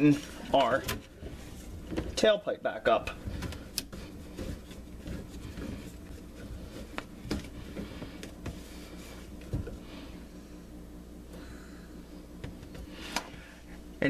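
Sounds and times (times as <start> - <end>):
low steady hum: 0.0 - 14.0
plastic rubbing: 3.1 - 9.8.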